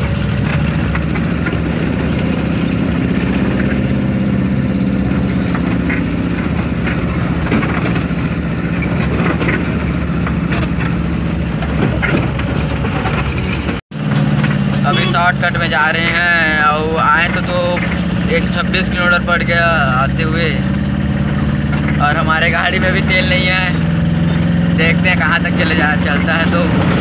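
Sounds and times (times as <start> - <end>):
vehicle body knocks and rattles: 0.0 - 14.8
diesel engine running: 0.0 - 27.0
road noise: 0.0 - 27.0.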